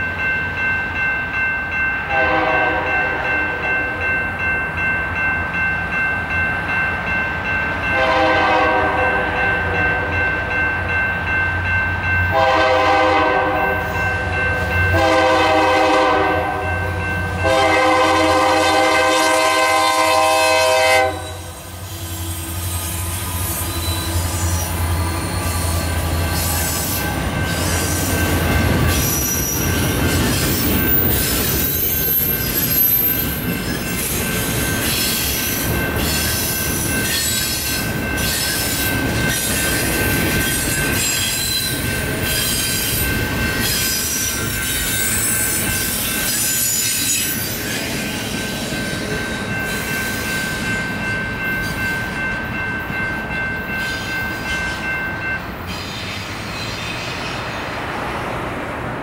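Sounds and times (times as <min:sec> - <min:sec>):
locomotive air horn blasts: 0:02.1 - 0:03.3, 0:08.0 - 0:10.1, 0:12.3 - 0:13.8, 0:14.9 - 0:16.6, 0:17.4 - 0:22.6
high-pitched wheel squeals: 0:21.2 - 0:28.3, 0:28.9 - 0:37.6.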